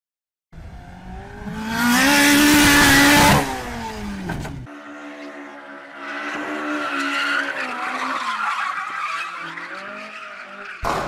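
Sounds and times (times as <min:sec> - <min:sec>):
car engine revving high: 0:00.6 - 0:08.0.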